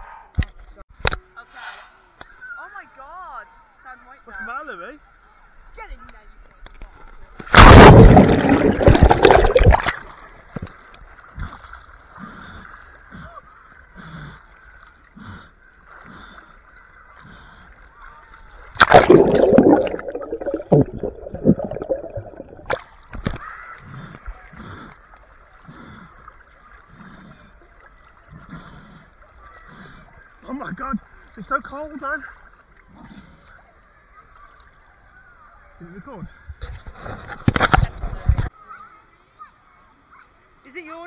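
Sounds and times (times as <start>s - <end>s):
water splashing and bubbling: 7.4s - 13.1s, 18.5s - 29.1s.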